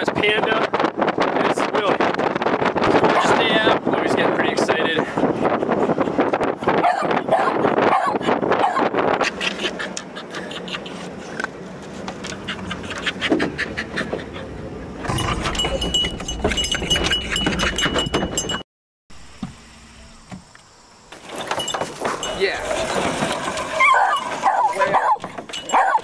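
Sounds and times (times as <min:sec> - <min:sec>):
dogs panting: 0:05.0 - 0:18.2
high thin steady whine: 0:19.1 - 0:23.6.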